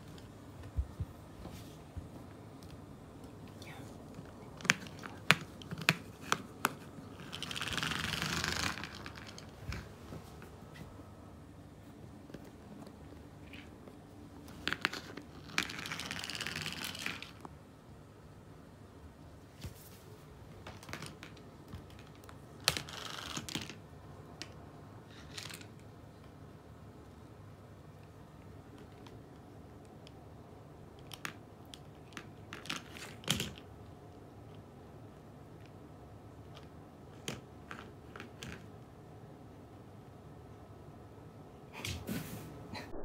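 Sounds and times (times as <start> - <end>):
cat scuffling: 19.4 - 21.2.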